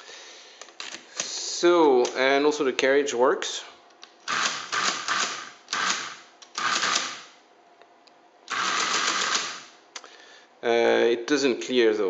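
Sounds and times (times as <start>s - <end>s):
mechanical calculator clattering: 4.3s - 7.1s, 8.5s - 9.6s.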